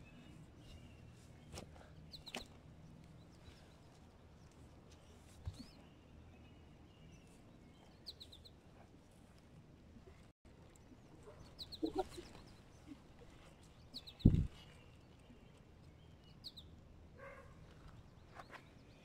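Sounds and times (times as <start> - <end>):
small bird chirping: 0.0 - 2.6, 3.2 - 8.6, 10.6 - 16.8.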